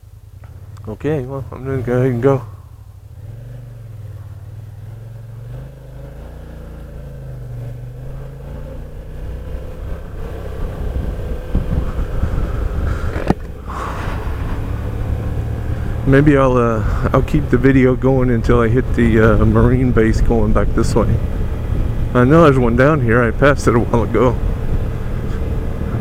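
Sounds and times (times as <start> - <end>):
scooter engine accelerating: 0.3 - 26.0
wind rush: 9.1 - 17.6, 18.4 - 26.0.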